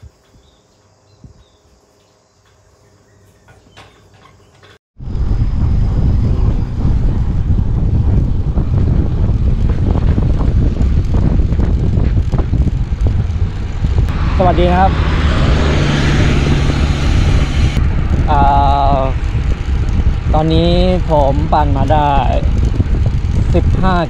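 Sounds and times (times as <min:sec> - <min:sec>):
wind buffeting microphone: 0:05.0 - 0:24.0.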